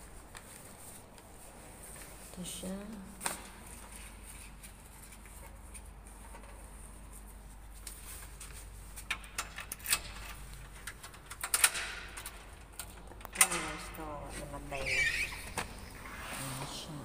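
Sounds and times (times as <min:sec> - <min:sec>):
glass door clicks and knocks: 0:11.4 - 0:12.5.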